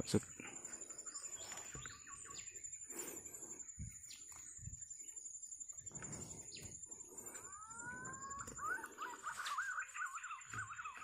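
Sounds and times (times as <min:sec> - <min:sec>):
bird chirps: 0:00.0 - 0:11.0.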